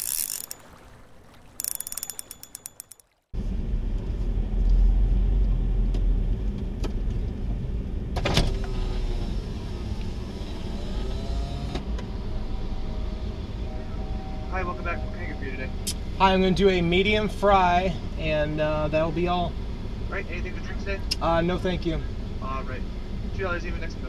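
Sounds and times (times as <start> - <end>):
ticking clicks: 0.0 - 3.2
car rolling with engine running: 3.4 - 13.1.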